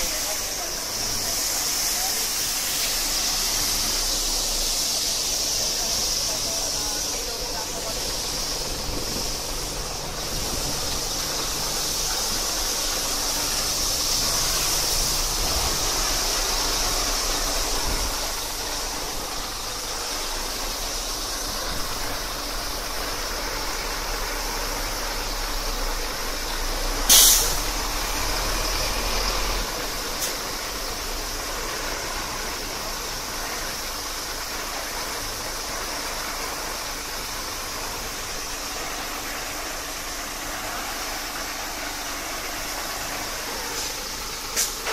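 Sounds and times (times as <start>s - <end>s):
diesel engine running: 0.0s - 44.9s
water jets spraying truck: 0.0s - 44.9s
short loud hiss: 26.8s - 30.7s, 42.5s - 44.9s.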